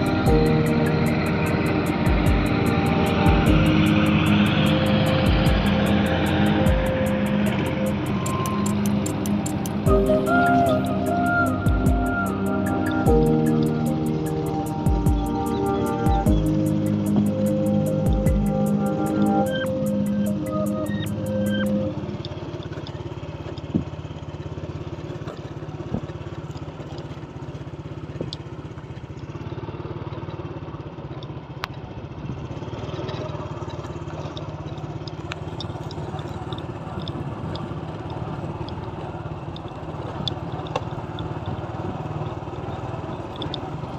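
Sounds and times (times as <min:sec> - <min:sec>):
background music: 0:00.0 - 0:22.0
small motorcycle engine running: 0:00.0 - 0:43.9.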